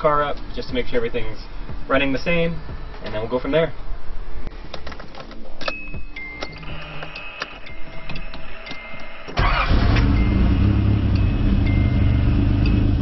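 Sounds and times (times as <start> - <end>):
car engine starting and idling: 7.6 - 13.0.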